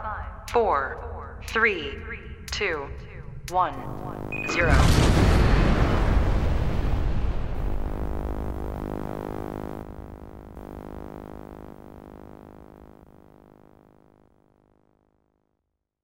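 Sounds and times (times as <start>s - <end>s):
sustained synthesizer tone: 2.0s - 14.0s
low boom rumble: 3.0s - 9.0s.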